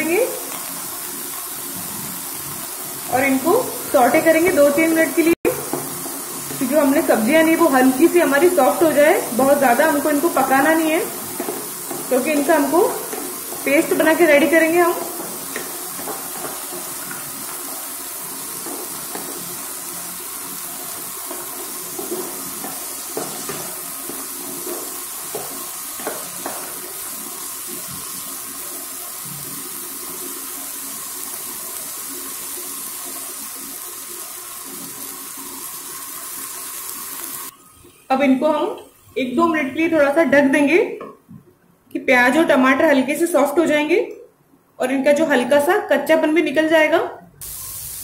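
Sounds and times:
vegetables sizzling in hot oil: 0.0s - 39.9s, 47.4s - 48.0s
spatula scraping and tapping: 5.5s - 6.8s, 11.2s - 14.3s, 14.9s - 17.6s, 18.6s - 19.6s, 21.2s - 27.0s.

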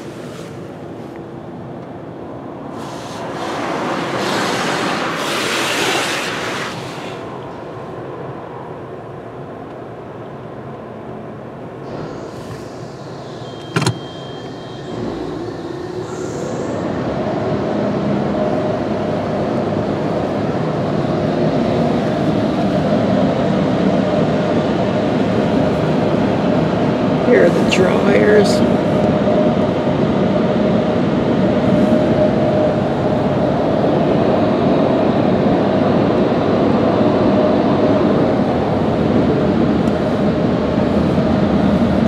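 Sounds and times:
dryer blowers whirring: 0.0s - 8.5s, 11.8s - 42.0s
water spray rushing on car: 2.8s - 7.3s.

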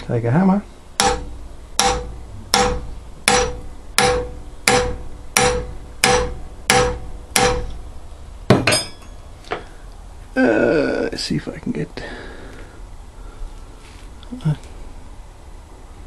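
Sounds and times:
hammer striking nail with metallic ring: 1.0s - 7.7s, 8.5s - 9.2s
loud metal clank: 1.0s - 7.7s, 8.5s - 9.3s.

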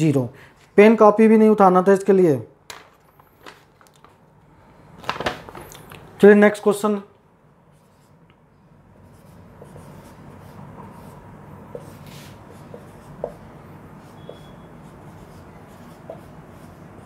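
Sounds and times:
marker writing on whiteboard: 7.7s - 17.0s.

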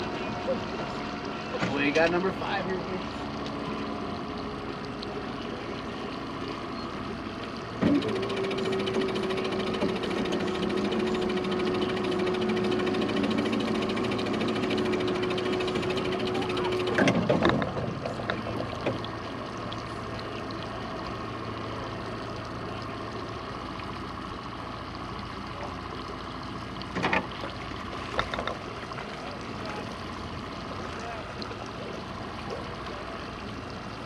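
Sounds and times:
low engine hum: 0.0s - 34.0s
water noise: 0.0s - 34.0s
small motor whining: 7.8s - 17.6s.

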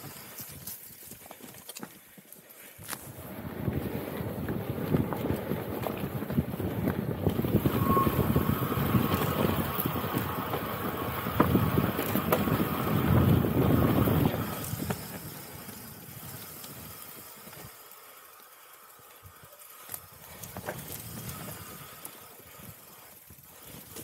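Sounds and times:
bike tyres rumbling over rocks: 2.8s - 18.4s, 19.2s - 24.0s
bike rattling and knocking: 3.0s - 18.0s, 19.3s - 24.0s
wind on microphone: 3.1s - 15.4s.

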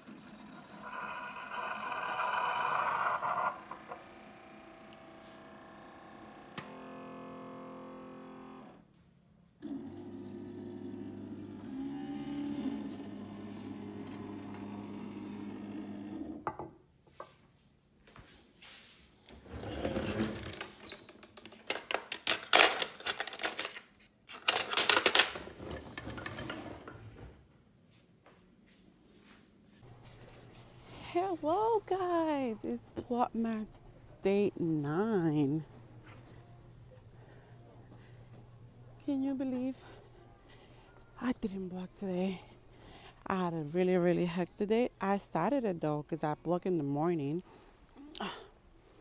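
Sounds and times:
coffee maker hissing and sputtering: 0.0s - 6.3s, 9.7s - 16.2s
coffee maker pump hum: 0.0s - 8.9s, 9.6s - 16.5s.

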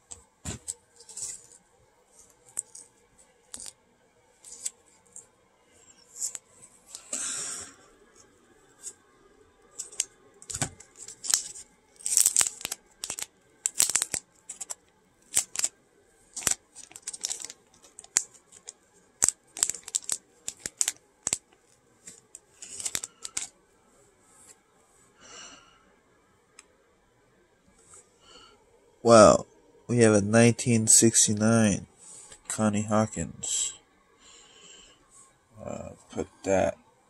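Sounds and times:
plastic crackles and clicks: 2.2s - 3.8s, 4.4s - 5.3s, 9.6s - 23.6s.

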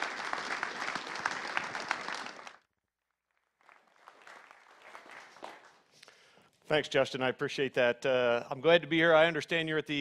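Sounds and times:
audience applauding: 0.0s - 2.7s, 3.6s - 5.9s
scattered clapping: 0.0s - 2.7s, 3.6s - 6.0s.

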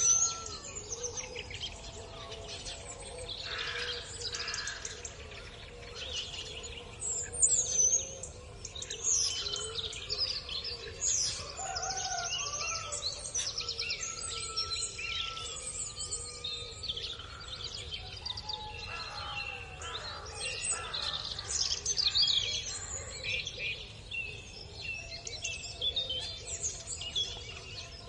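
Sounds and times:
small songbirds chirping: 0.0s - 28.0s.

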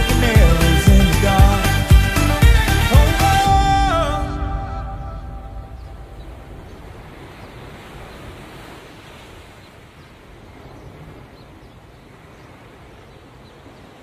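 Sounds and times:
steady rushing noise: 3.4s - 11.3s.

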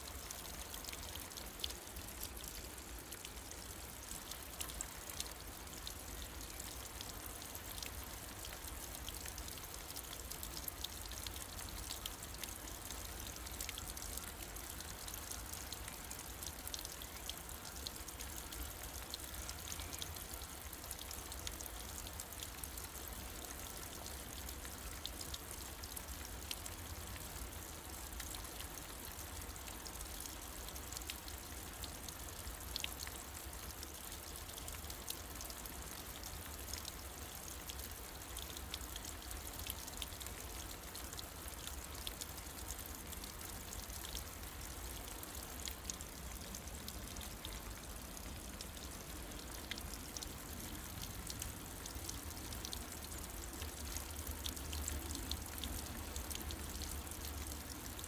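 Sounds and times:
water trickling down rock: 0.0s - 58.0s.

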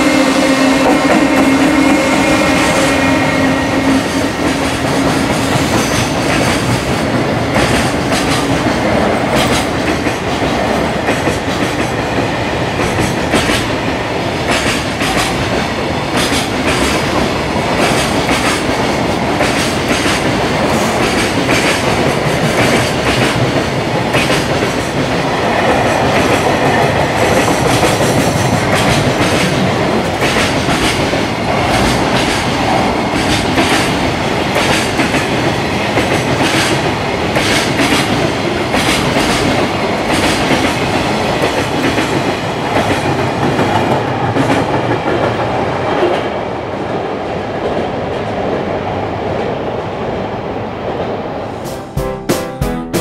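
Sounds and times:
train rolling rumble: 0.0s - 51.6s
train wheels clicking over rail joints: 4.4s - 13.8s, 14.4s - 46.2s.

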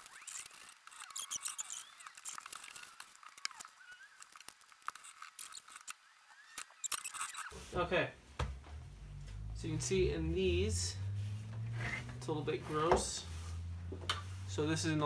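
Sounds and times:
cloth rubbing with squeaks: 0.0s - 7.9s, 8.8s - 15.0s.

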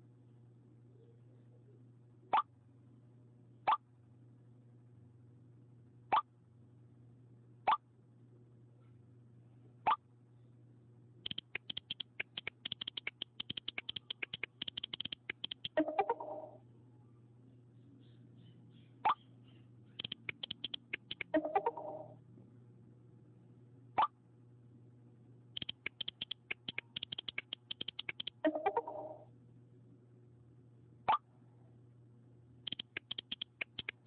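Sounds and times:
on-screen keyboard clicks: 11.2s - 16.4s, 19.9s - 21.9s, 25.6s - 29.0s, 32.7s - 34.0s.

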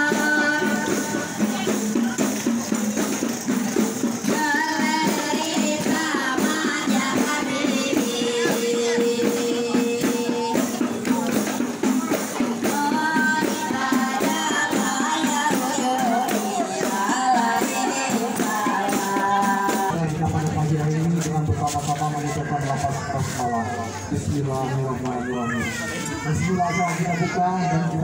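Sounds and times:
women singing: 0.0s - 1.9s, 4.2s - 11.4s, 12.4s - 19.9s
frame drum beat: 0.0s - 28.0s.

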